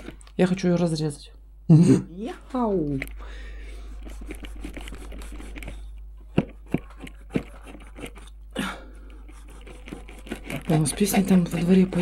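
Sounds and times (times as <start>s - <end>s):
knife sawing through crisp wrap: 3.9s - 5.9s, 6.6s - 8.3s, 9.2s - 12.0s.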